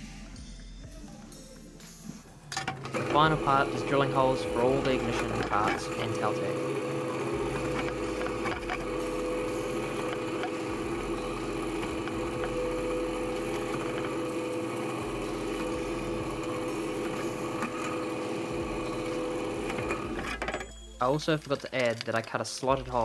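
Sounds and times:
drill press motor humming: 2.6s - 20.7s.

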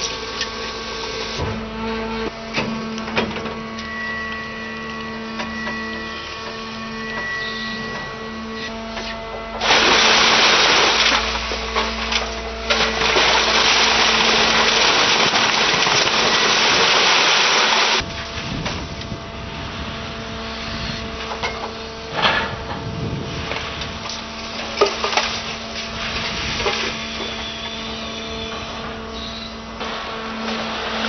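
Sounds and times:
loud rushing of bale ejection: 9.6s - 11.6s, 12.8s - 18.0s.

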